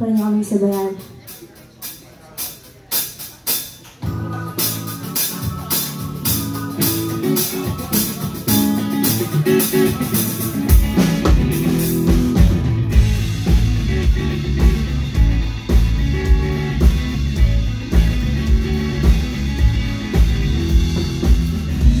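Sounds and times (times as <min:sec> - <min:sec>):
drums: 0:00.0 - 0:22.0
guitars: 0:00.0 - 0:22.0
heavy low end: 0:10.7 - 0:22.0.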